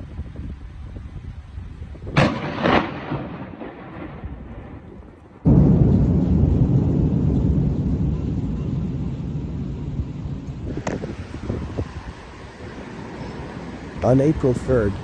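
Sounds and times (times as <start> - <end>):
thunder crack and rumble: 2.0 - 12.9
loud steady low noise: 2.2 - 15.0.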